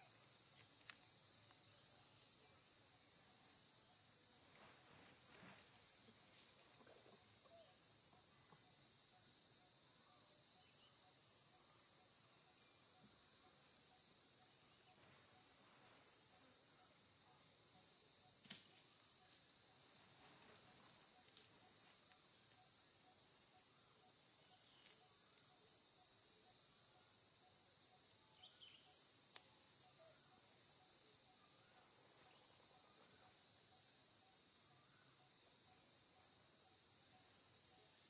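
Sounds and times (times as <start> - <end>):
insects droning: 0.0 - 38.0
faint clicks: 29.3 - 29.5.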